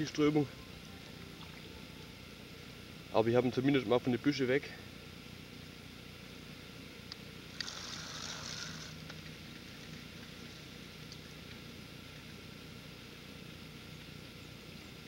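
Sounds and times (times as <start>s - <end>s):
hissing burst: 7.6s - 9.0s.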